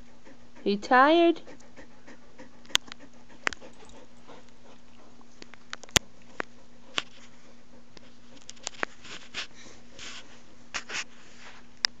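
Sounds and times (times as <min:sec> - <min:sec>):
dog sniffing: 0:00.0 - 0:05.3
faint hum: 0:00.0 - 0:12.0.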